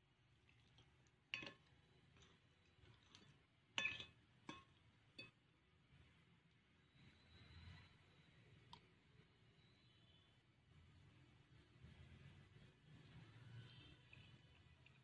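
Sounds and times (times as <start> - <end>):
cutlery clinking on a plate: 3.8 - 5.4.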